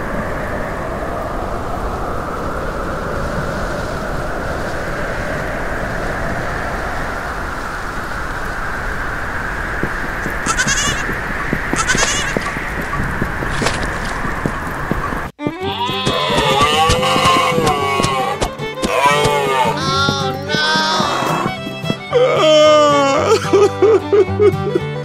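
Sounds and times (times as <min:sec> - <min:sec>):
steady rushing noise: 0:00.0 - 0:15.5, 0:16.4 - 0:22.2
farm animal bleating: 0:10.4 - 0:11.1, 0:11.7 - 0:12.5, 0:15.6 - 0:23.6.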